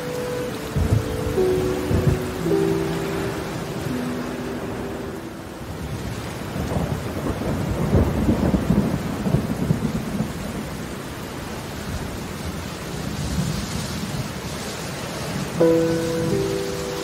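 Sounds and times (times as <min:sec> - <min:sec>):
thunder rumbling: 0:00.0 - 0:11.1
steady rain: 0:00.0 - 0:17.0.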